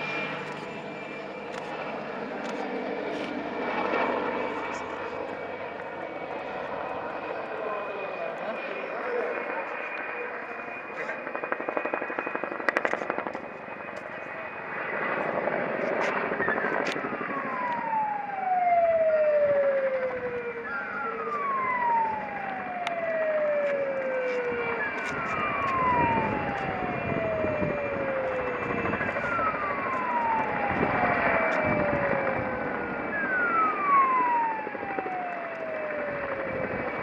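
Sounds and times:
helicopter rotor and turbines: 0.0 - 37.0
siren sliding down in pitch: 15.8 - 37.0.

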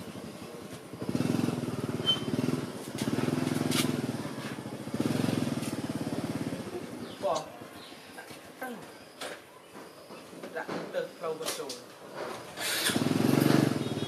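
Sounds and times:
small engine running: 12.6 - 14.0.

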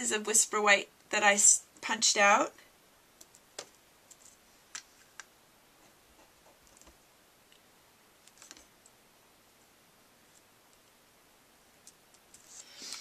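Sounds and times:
faint clicks and taps: 3.2 - 9.0.

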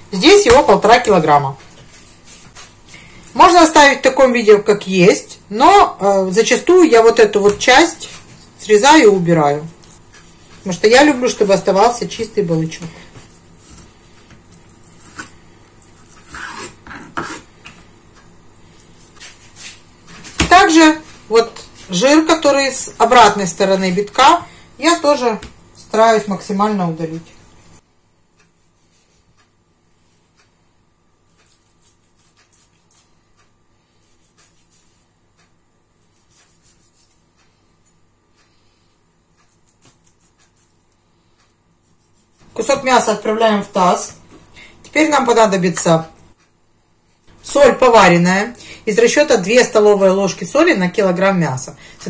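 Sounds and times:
low steady hum: 0.0 - 52.0
knife scraping on cutting board: 14.8 - 17.8, 31.3 - 33.1.

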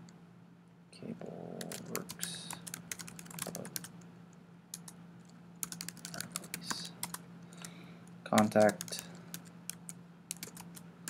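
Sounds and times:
faint steady hum: 0.0 - 11.0
keyboard keystroke clicks: 8.4 - 10.6.

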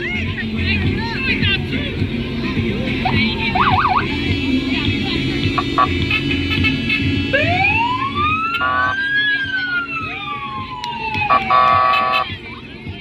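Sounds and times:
siren wailing: 3.0 - 4.1, 5.6 - 6.1, 7.3 - 12.3
short horn blasts: 8.5 - 8.9, 11.5 - 12.3.

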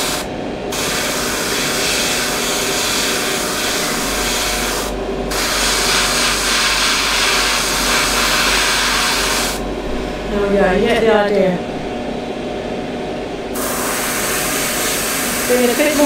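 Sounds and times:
low hum: 0.0 - 8.5, 9.5 - 13.6
airbrush hissing: 0.0 - 9.6, 13.6 - 16.0.

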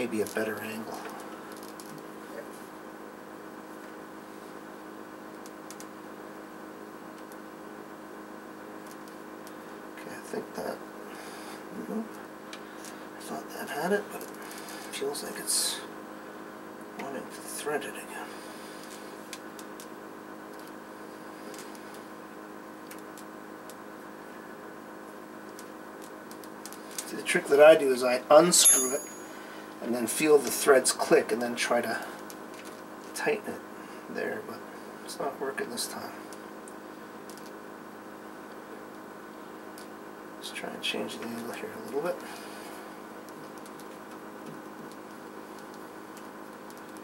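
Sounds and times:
steady hum: 0.0 - 47.0.

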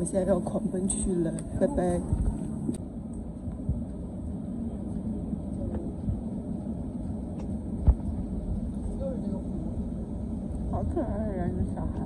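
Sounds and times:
train rumbling inside carriage: 0.0 - 12.0.

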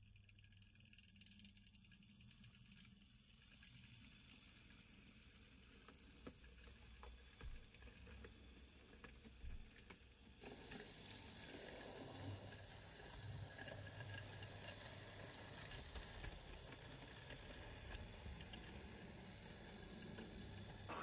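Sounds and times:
model train motor humming: 0.4 - 21.0
wheels ticking over track: 9.9 - 21.0.

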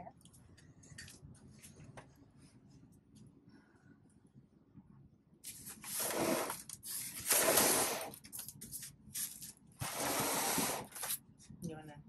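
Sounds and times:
styrofoam scraping and rustling: 5.5 - 8.2, 9.2 - 11.1.

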